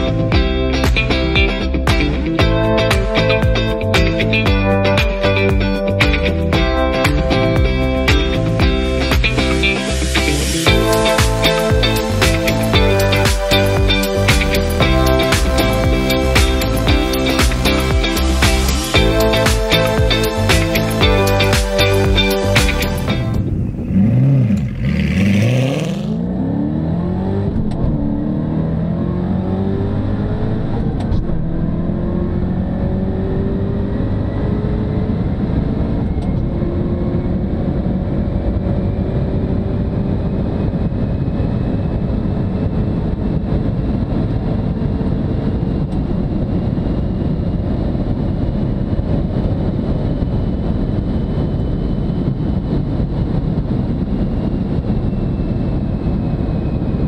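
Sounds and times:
car engine at full throttle: 0.0 - 57.0
wind and tyre noise: 5.2 - 57.0.

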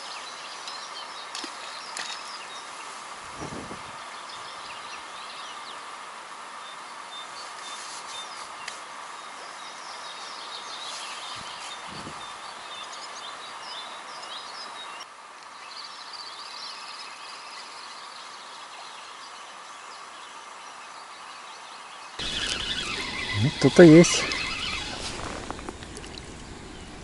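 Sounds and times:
outdoor background hiss: 0.0 - 27.0
songbirds chirping and singing: 21.5 - 27.0.

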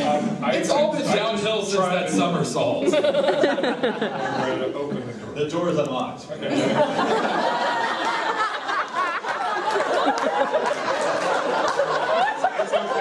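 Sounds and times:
people talking: 0.0 - 3.3, 3.9 - 7.0, 12.2 - 13.0
crowd laughing: 2.8 - 5.2, 6.4 - 13.0.

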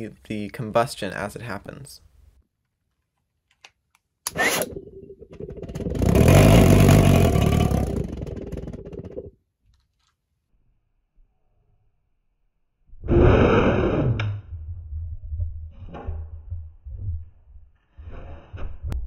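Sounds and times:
pulse jet fluttering rumble: 4.7 - 9.3.

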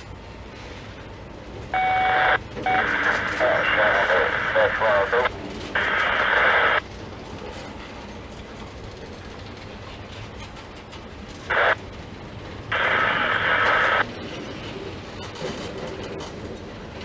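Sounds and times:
train wheels rumbling on rail: 0.0 - 17.0
radio static bursts: 1.8 - 6.8, 11.5 - 11.8, 12.7 - 14.0.

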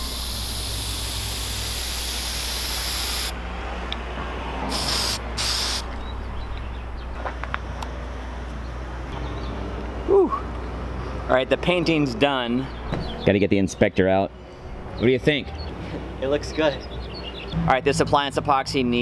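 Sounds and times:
aerosol spray can hissing: 0.0 - 3.3, 4.7 - 5.8.

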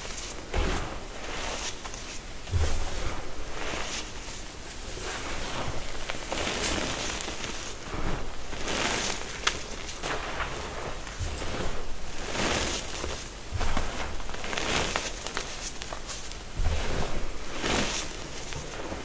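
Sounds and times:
chalk crackle: 0.0 - 19.0
hands crumbling chalk: 5.1 - 19.0.

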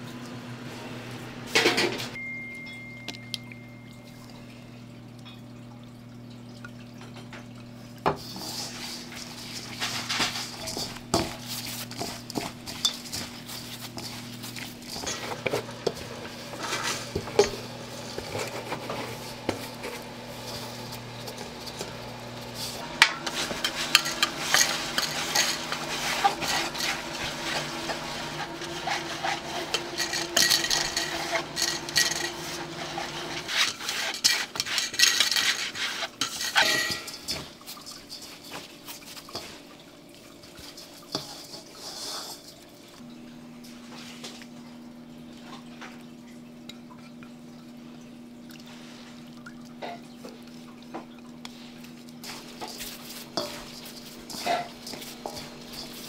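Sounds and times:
electric machine hum: 0.0 - 33.6
utensils and dishes clattering: 1.5 - 4.5, 6.9 - 43.0, 49.7 - 56.0.

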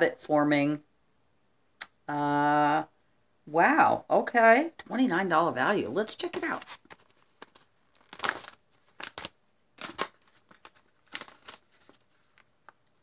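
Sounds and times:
packaging pouch crinkling and tearing: 6.6 - 12.8.

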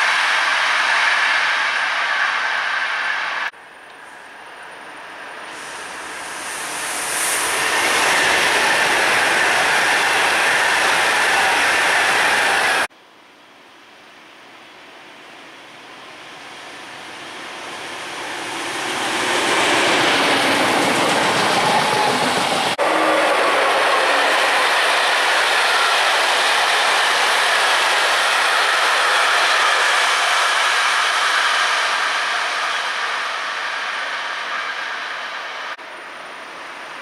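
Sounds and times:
train wheels rumbling on rails: 0.0 - 12.9, 16.0 - 37.0.

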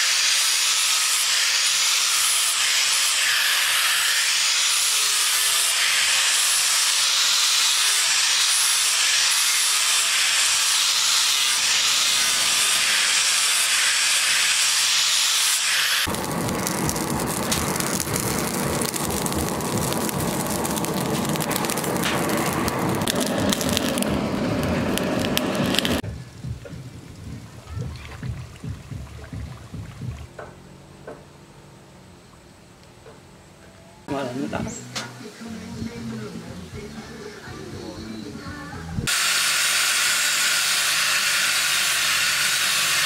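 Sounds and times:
angle grinder grinding steel: 0.0 - 26.0, 39.1 - 43.0
forge fire roaring and crackling: 16.0 - 28.7.

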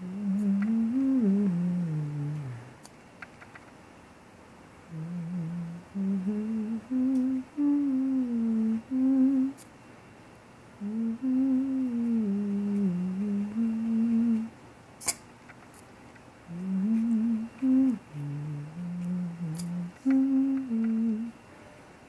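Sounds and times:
person humming a tune: 0.0 - 2.8, 4.9 - 9.7, 10.8 - 14.6, 16.5 - 21.4.

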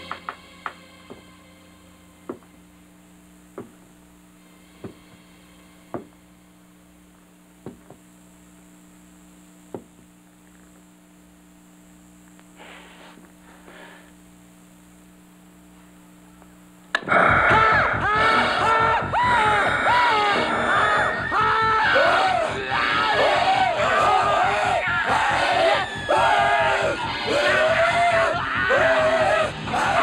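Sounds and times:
low steady hum: 0.0 - 30.0
soft hisses: 12.2 - 14.3
loud scream: 17.1 - 30.0.

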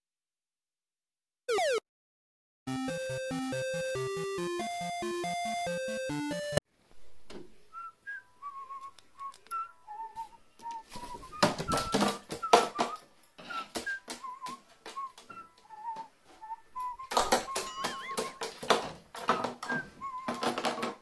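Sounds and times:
wavering whistled notes: 7.7 - 18.4, 19.4 - 21.0.

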